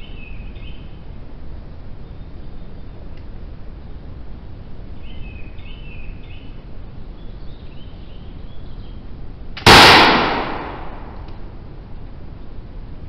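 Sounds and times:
musket gunshot: 9.6s - 11.2s
gunshot echo: 9.6s - 11.3s.

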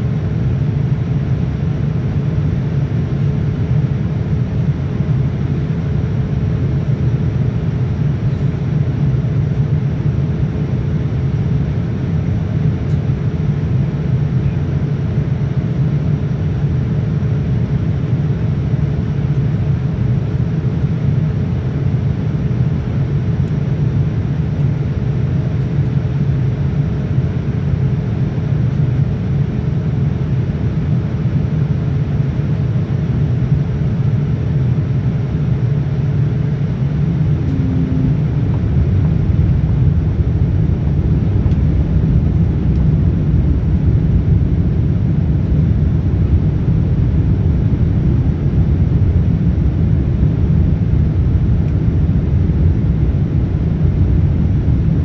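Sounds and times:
airflow and jet engine rumble: 0.0s - 55.0s
thin steady hum: 34.4s - 55.0s.

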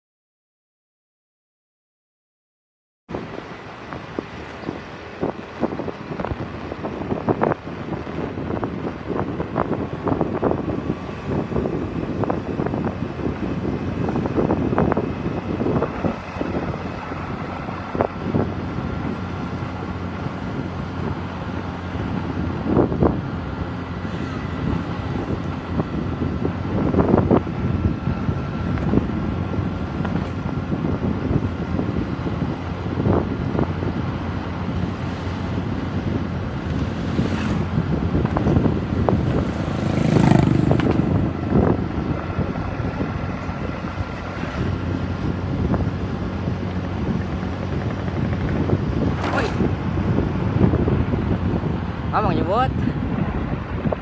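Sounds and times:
wind buffeting microphone: 3.1s - 54.0s
motorcycles passing: 3.2s - 54.0s
motorcycle engine running: 4.0s - 52.2s
small motorcycle engine running: 39.0s - 41.8s.

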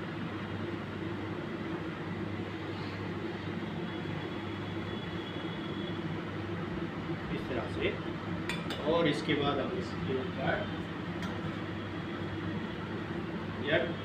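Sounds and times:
exhaust fan humming: 0.0s - 14.0s.

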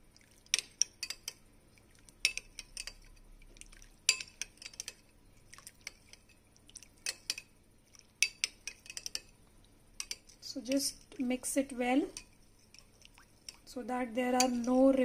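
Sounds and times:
metal spoon clinking in bowl: 8.2s - 9.3s, 10.0s - 11.0s, 14.4s - 14.8s.

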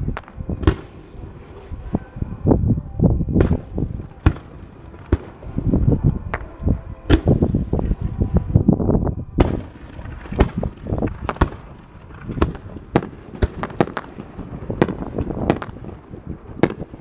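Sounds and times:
fireworks bangs with echo: 0.1s - 1.2s, 3.4s - 5.6s, 9.4s - 17.0s.

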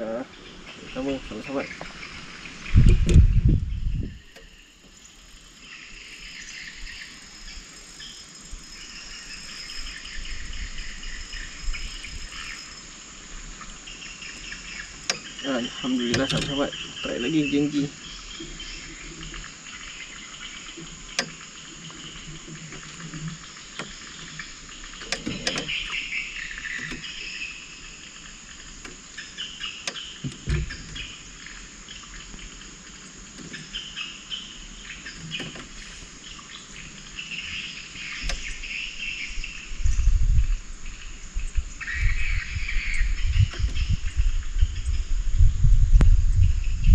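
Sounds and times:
insects shrilling: 0.0s - 45.2s
bird chirps: 13.8s - 22.4s, 23.5s - 28.3s, 33.5s - 45.1s
sharp clicks: 29.8s - 31.0s.

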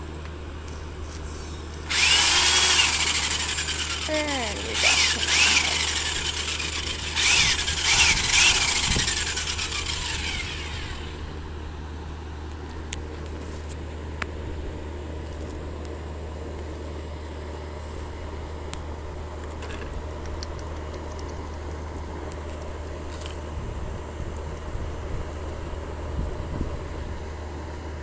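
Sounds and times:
low hum: 0.0s - 12.0s
electric drill whining: 1.8s - 11.4s.

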